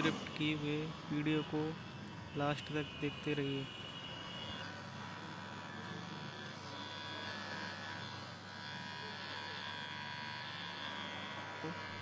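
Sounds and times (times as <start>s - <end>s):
hair clipper buzzing: 0.0s - 1.2s, 4.4s - 12.0s.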